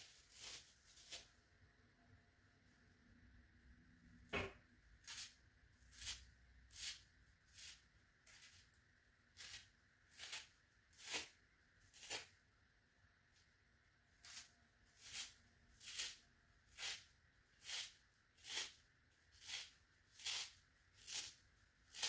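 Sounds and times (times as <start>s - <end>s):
sponge being torn by hand: 0.0s - 1.3s, 9.4s - 12.4s, 14.2s - 22.0s.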